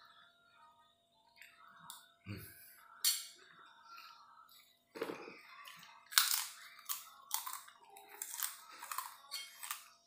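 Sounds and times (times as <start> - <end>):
crunching and chewing fried snack: 4.9 - 10.0.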